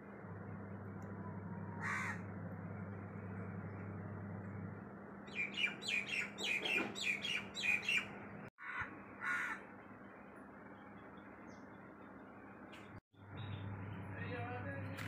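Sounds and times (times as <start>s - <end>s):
crow cawing: 1.8s - 2.3s, 8.6s - 9.7s.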